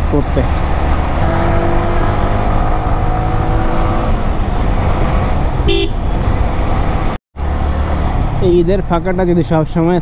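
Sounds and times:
motorcycle engine rumbling: 0.0 - 9.9
vehicle horn beep: 5.7 - 6.0.

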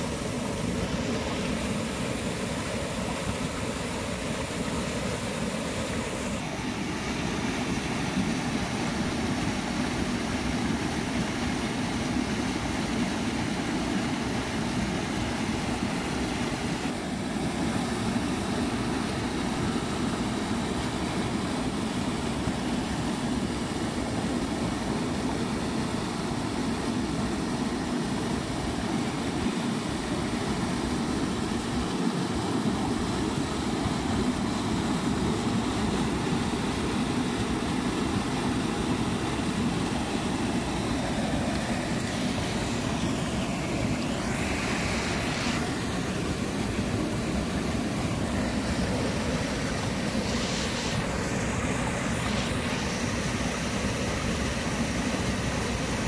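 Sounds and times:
water rushing over spillway: 0.0 - 56.0.

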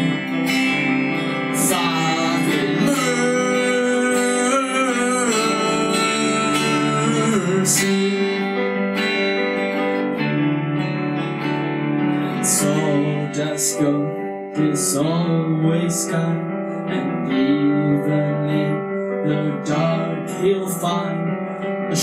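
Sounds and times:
rock band playing: 0.0 - 14.0
electric guitar lead: 0.0 - 22.0.

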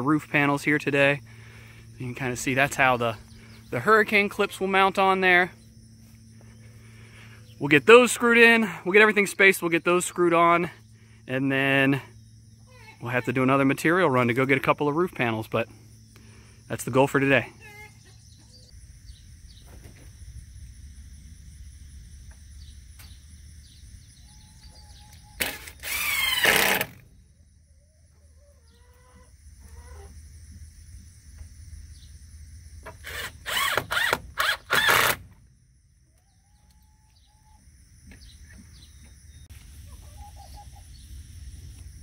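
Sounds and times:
cordless drill driving screws: 25.4 - 27.0, 33.0 - 35.2
hens clucking: 28.1 - 30.3, 39.7 - 40.9.

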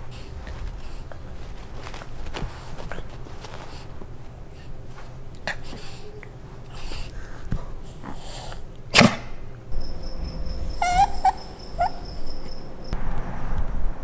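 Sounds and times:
dog whining: 9.8 - 12.9.

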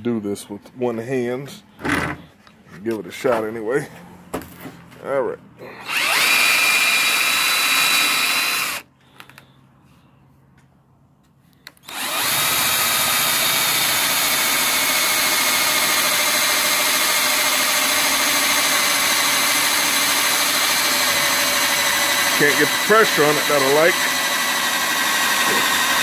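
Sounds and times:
cordless drill boring: 5.8 - 8.9, 11.8 - 26.0.

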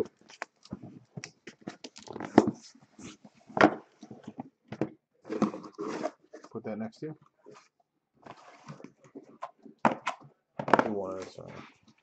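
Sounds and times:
cardboard scraping and creaking: 5.2 - 6.6, 7.5 - 9.4.

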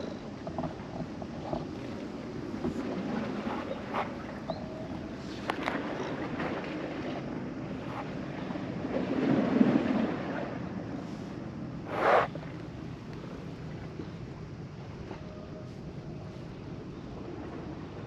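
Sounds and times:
sea washing against breakwater: 11.4 - 12.9.

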